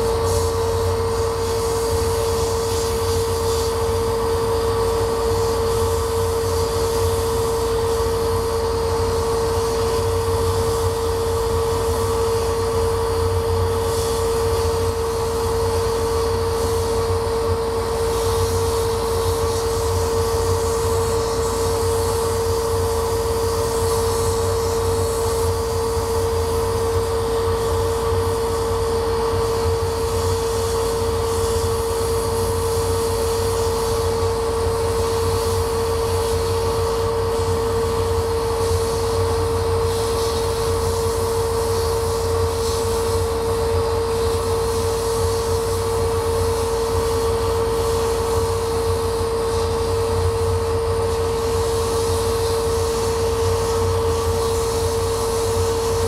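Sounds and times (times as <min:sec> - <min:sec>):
laser cutter humming: 0:00.0 - 0:56.0.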